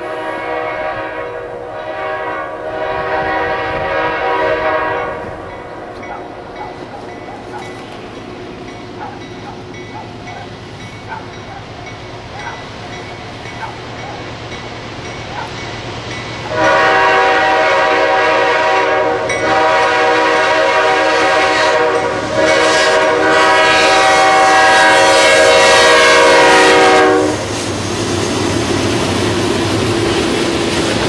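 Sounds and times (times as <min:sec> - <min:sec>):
locomotive air horn blasts: 0:00.0 - 0:05.9, 0:16.4 - 0:27.5
freight cars rumbling on rails: 0:00.0 - 0:31.0.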